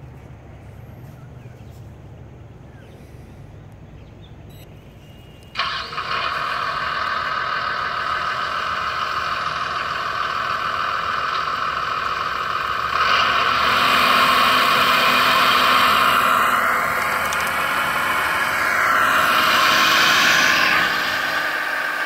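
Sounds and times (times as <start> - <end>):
hydraulic pump whining: 5.4 - 22.0.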